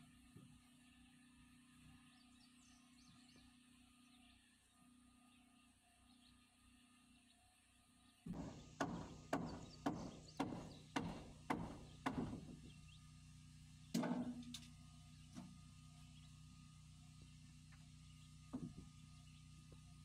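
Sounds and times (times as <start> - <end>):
low steady hum: 0.0 - 20.0
hammer striking nails: 8.3 - 12.6.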